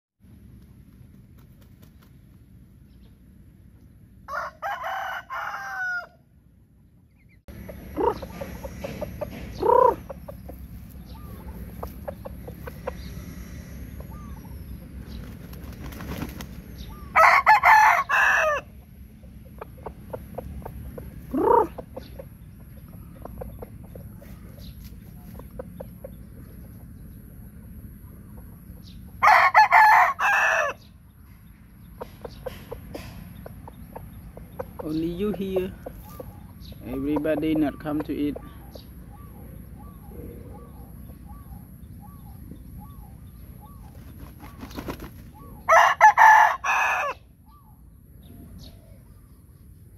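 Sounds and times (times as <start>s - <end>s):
rooster crowing: 4.3s - 6.3s, 17.1s - 18.8s, 29.2s - 30.9s, 45.6s - 47.3s
short rising clucks: 7.6s - 13.2s.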